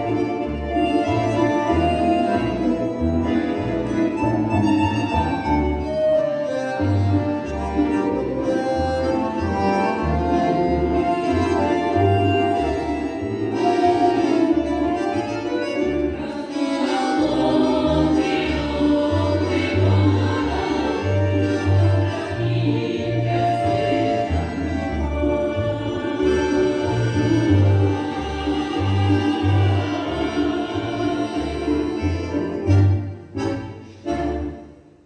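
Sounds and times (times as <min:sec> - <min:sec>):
accordion with pulsing bass: 0:00.0 - 0:35.0
women's choir singing folk song: 0:06.8 - 0:32.8.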